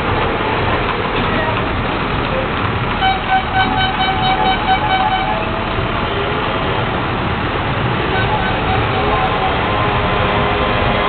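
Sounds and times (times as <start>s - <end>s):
busy promenade din: 0.0s - 11.0s
horn-like tone tooting: 3.0s - 5.7s, 8.1s - 10.7s.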